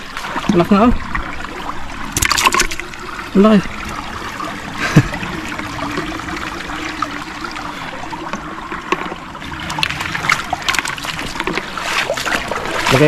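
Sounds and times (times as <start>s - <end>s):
small sharp splashes: 0.0s - 3.0s, 9.7s - 13.0s
river water trickling and sloshing: 0.0s - 13.0s.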